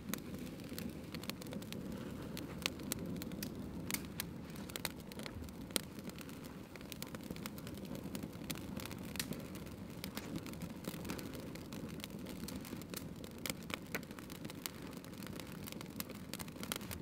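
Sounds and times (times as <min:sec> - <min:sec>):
campfire crackling and popping: 0:00.0 - 0:17.0.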